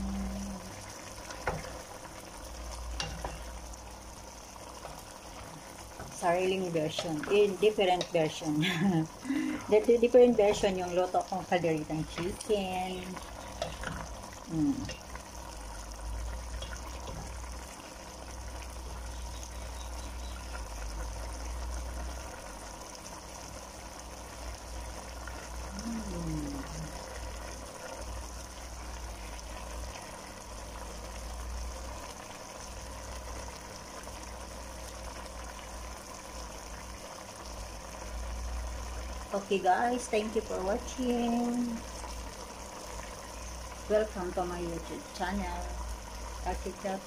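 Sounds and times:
low hum: 0.0s - 1.8s
pot simmering with bubbling: 0.0s - 47.0s.

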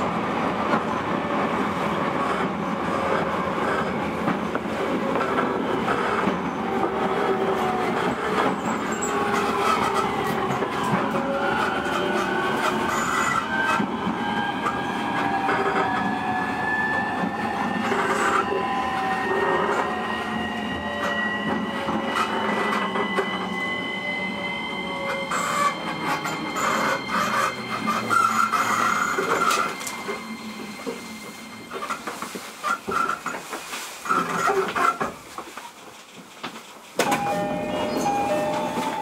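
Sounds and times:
train wheels rumbling on rails: 0.0s - 39.0s
wheels clacking over track joints: 25.1s - 39.0s.

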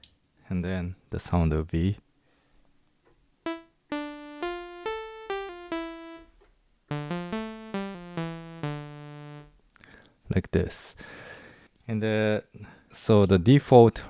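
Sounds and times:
synthesizer playing single notes: 3.5s - 6.3s, 6.9s - 9.5s.

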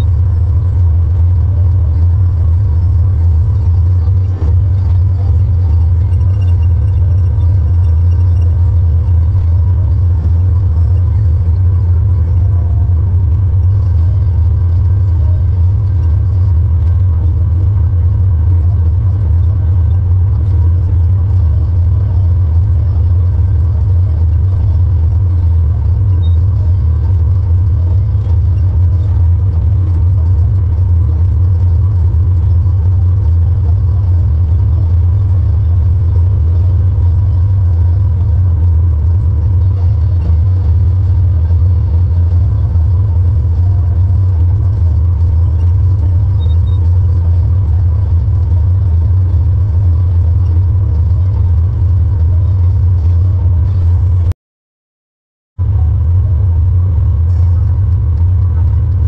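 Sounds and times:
tractor engine rumble: 0.0s - 54.4s, 55.6s - 59.0s.

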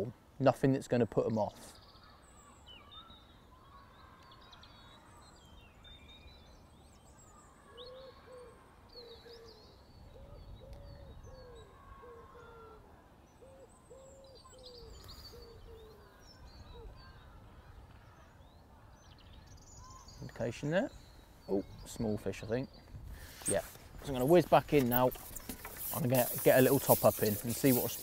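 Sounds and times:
small birds chirping: 0.0s - 28.0s
bird cooing: 7.6s - 17.2s.

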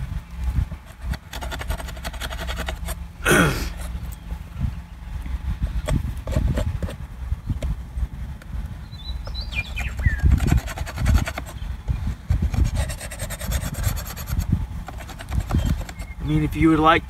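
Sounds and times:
scraping on wooden beehive parts: 0.8s - 3.0s, 5.3s - 7.0s, 9.4s - 11.6s, 12.2s - 16.4s.

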